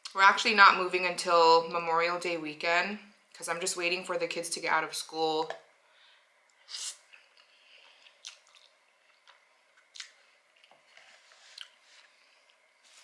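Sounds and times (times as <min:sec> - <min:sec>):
chewing with wet mouth smacks: 0:07.1 - 0:10.8.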